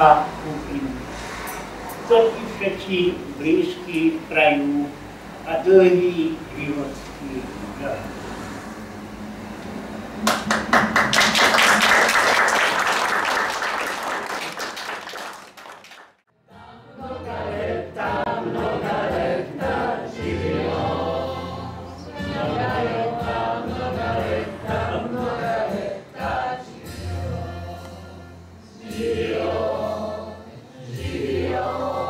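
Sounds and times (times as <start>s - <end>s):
people applauding: 10.2s - 16.2s
group singing with music: 16.3s - 32.0s.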